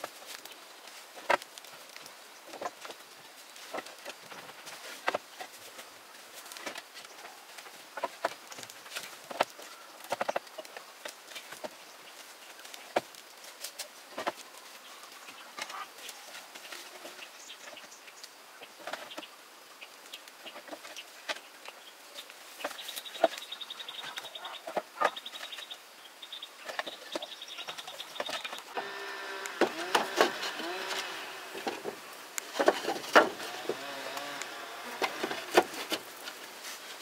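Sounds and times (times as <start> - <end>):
animal calls: 22.6 - 32.0
insect pulsing buzz: 28.7 - 32.3, 33.0 - 35.6.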